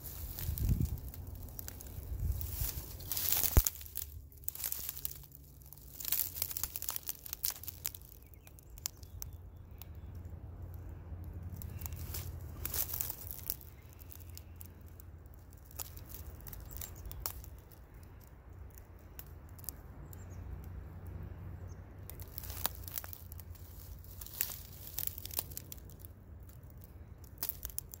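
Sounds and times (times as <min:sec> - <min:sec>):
handling crackles and clicks: 0:00.0 - 0:20.8, 0:21.7 - 0:28.0
low steady rumble: 0:00.0 - 0:28.0.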